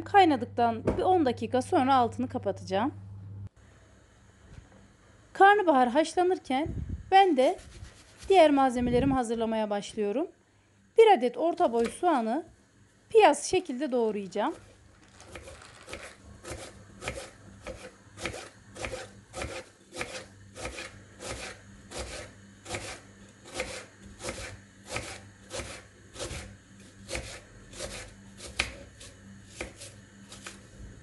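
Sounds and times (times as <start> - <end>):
knife slicing onion on board: 15.3 - 30.7.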